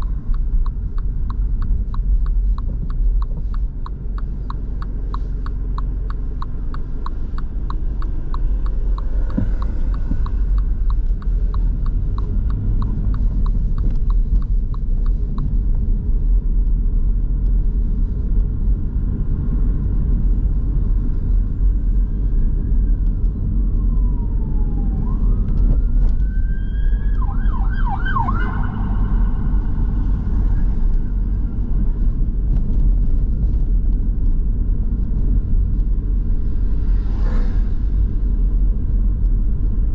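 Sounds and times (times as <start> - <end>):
turn indicator ticking: 0.0 - 21.4, 22.6 - 36.9, 37.9 - 39.9
road and engine rumble: 0.0 - 39.9
emergency vehicle siren: 21.1 - 30.9.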